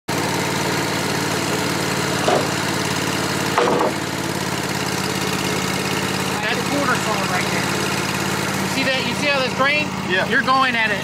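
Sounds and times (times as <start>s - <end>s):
sawmill engine idling: 0.1s - 11.0s
wooden board knocks: 2.2s - 2.5s, 3.5s - 4.0s.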